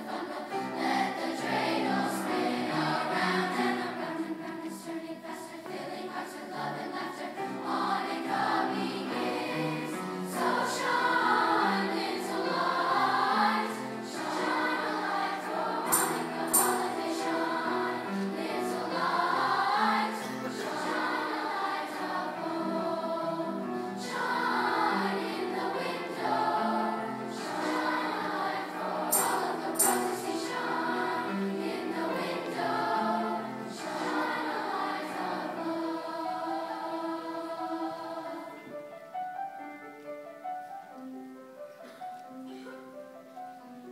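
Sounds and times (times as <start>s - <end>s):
youth choir singing: 0.0s - 38.8s
grand piano accompaniment: 0.0s - 43.9s.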